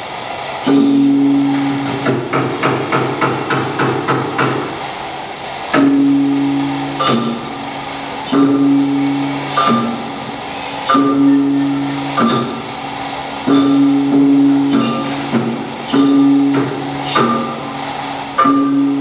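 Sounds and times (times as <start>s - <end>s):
gong ensemble music: 0.7s - 2.2s, 5.8s - 19.0s
deep gongs ringing: 0.7s - 2.3s, 5.8s - 19.0s.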